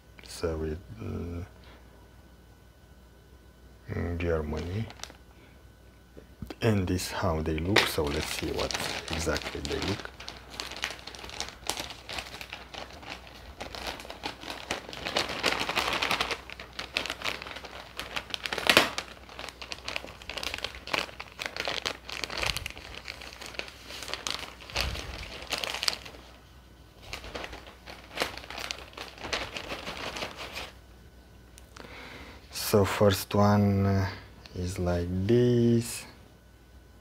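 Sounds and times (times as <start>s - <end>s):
plastic bag crinkling: 4.2s - 5.2s, 7.0s - 30.8s.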